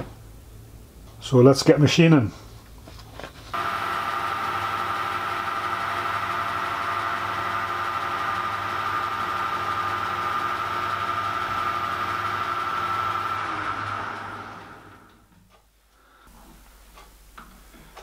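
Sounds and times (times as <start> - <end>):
metal lathe gear whine: 3.6 - 15.2
low motor hum: 3.6 - 15.3.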